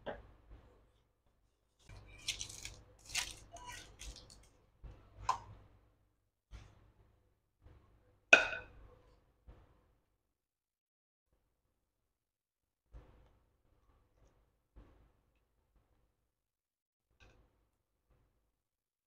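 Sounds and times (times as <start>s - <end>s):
parchment paper crinkling: 1.9s - 4.6s.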